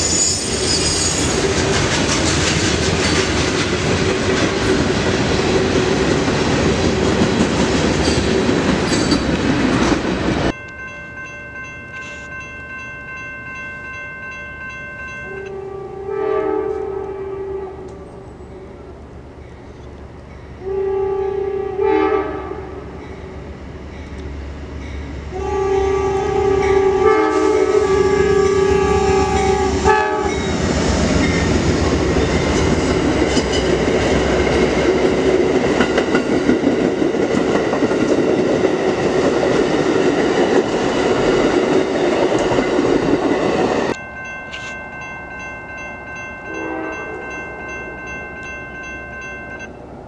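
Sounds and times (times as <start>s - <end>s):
train wheels clattering over rails: 1.2s - 10.5s
crossing warning bell ringing: 10.5s - 16.3s, 22.8s - 24.2s, 24.8s - 49.9s
train horn chord: 15.3s - 19.0s, 20.6s - 22.9s, 25.3s - 30.5s, 46.4s - 47.7s.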